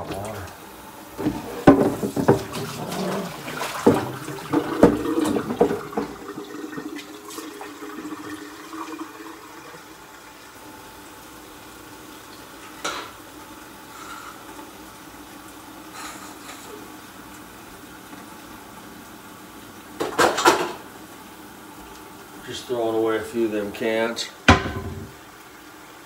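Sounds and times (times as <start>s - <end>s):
water running at sink: 0.0s - 26.0s
dishes and cans clattering: 1.2s - 6.9s, 20.0s - 20.8s, 24.5s - 25.2s.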